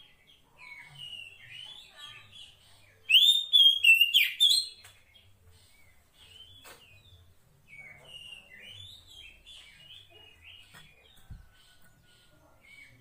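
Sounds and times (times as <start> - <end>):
bird whistling and chirping: 3.1 - 4.8.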